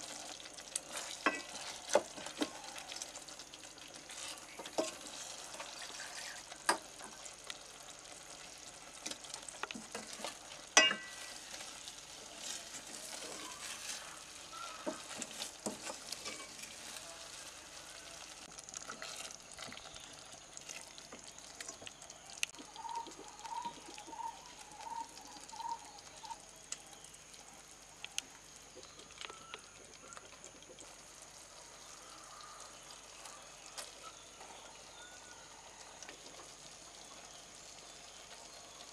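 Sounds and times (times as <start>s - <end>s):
low sizzle: 0.0s - 38.9s
spoon clinking against pot: 1.2s - 1.5s, 10.8s - 11.3s
metal spoon scraping pot: 9.9s - 11.4s, 14.8s - 16.8s.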